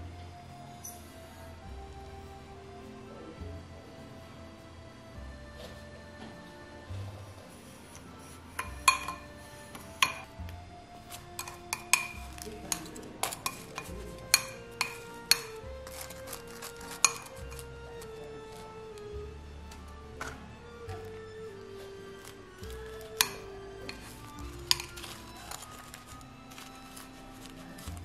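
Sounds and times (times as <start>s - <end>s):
soft background music: 0.0s - 28.0s
metal tongs clinking on glass bowl: 8.6s - 9.3s, 11.4s - 17.7s, 22.7s - 26.0s.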